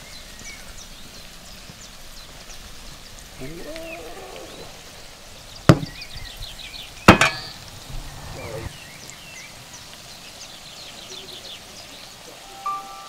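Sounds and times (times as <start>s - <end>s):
oil sizzling: 0.0s - 13.0s
metal pot knocking on wooden board: 5.7s - 6.0s, 7.1s - 7.6s.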